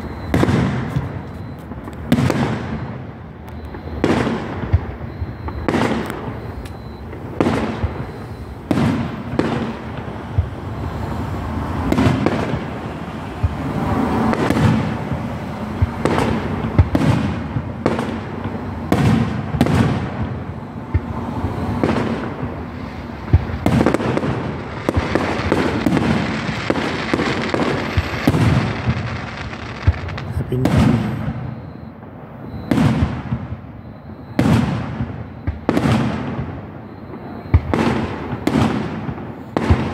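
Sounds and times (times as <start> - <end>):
firework shells bursting: 20.9 - 31.5.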